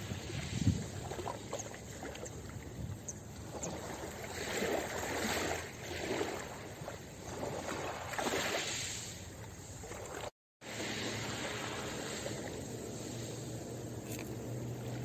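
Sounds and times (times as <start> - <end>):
waves lapping on pebble shore: 3.5 - 15.0.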